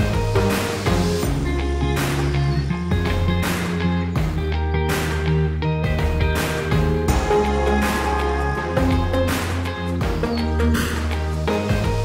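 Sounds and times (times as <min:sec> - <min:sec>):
background music with bass line: 0:00.0 - 0:12.0
sharp percussive hit: 0:06.4 - 0:10.2.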